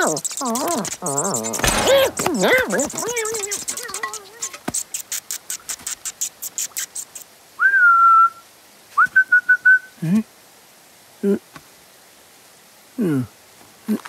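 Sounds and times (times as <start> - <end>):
small animal scurrying: 0.0 - 7.0
man whistling: 7.6 - 8.4, 9.0 - 9.9.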